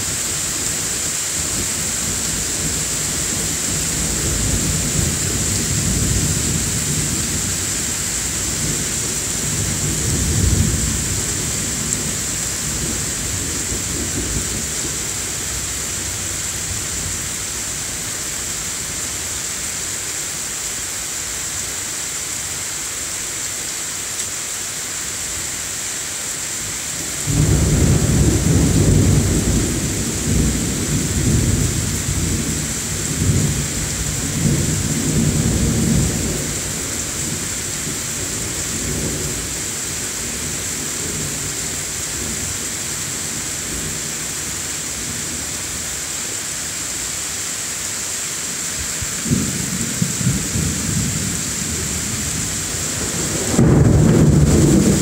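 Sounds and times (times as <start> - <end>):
rain hissing: 0.0 - 55.0
thunder rumbling: 27.2 - 39.4, 49.2 - 55.0.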